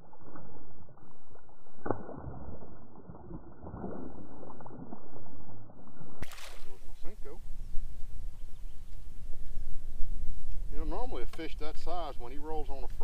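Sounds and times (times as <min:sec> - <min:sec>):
fish splashing in water: 0:06.2 - 0:06.9.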